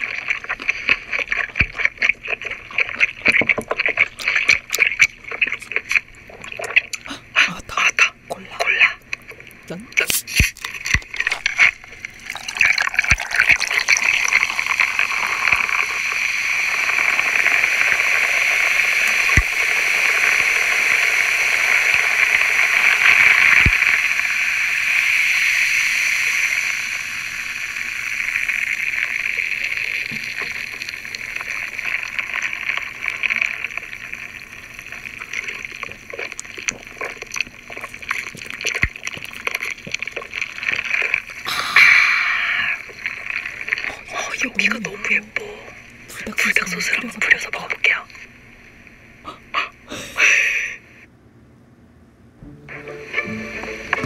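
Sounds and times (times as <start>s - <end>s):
gulping: 0.0s - 15.4s, 35.1s - 43.1s
cola pouring and fizzing: 0.0s - 48.0s, 52.7s - 54.0s.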